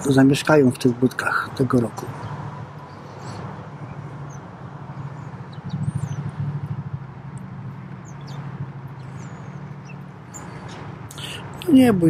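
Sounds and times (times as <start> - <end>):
small birds chirping and whistling: 2.1 - 6.8, 7.8 - 11.9.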